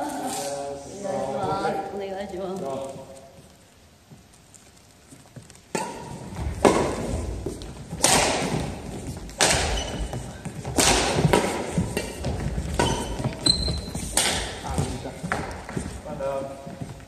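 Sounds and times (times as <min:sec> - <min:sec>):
footfalls on gym floor: 0:05.2 - 0:17.0
racket hitting shuttlecock: 0:05.7 - 0:15.8.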